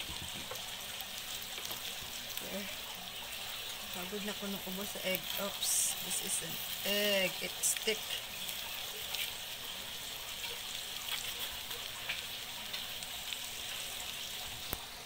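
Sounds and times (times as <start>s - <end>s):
food sizzling in a frying pan: 0.0s - 15.0s.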